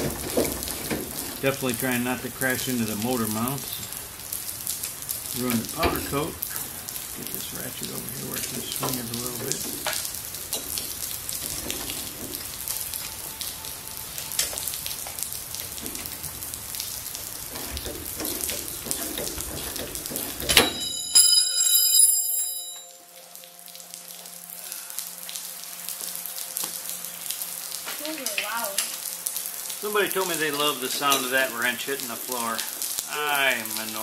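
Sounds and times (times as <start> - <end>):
wrench clanging on concrete: 20.5 - 22.9.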